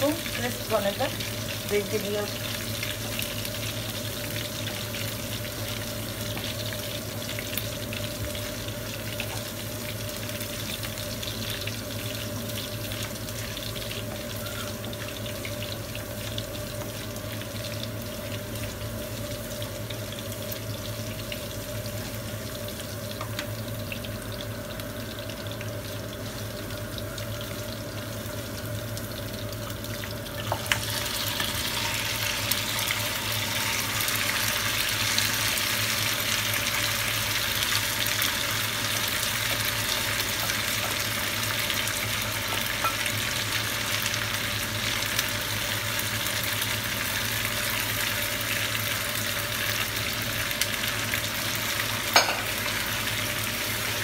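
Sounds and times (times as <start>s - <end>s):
leaves sizzling in hot oil: 0.0s - 54.0s
steady hum: 26.6s - 43.1s.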